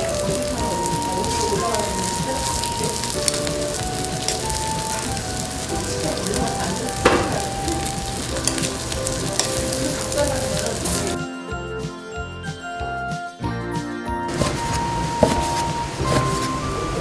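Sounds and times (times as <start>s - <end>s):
meat sizzling on grill plate: 0.0s - 11.2s, 14.3s - 17.0s.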